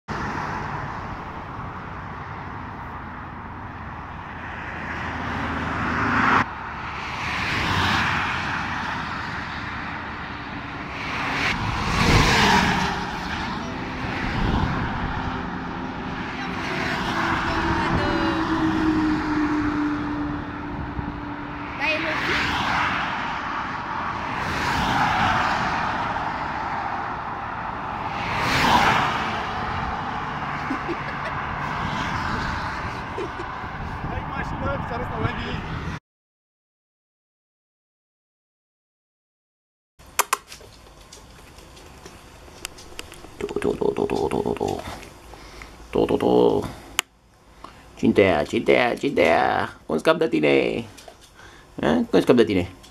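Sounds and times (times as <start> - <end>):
highway traffic rushing: 0.0 - 36.0, 40.0 - 52.9
steady road noise: 0.0 - 36.0, 40.0 - 52.9
vehicle passing at speed: 0.1 - 36.0.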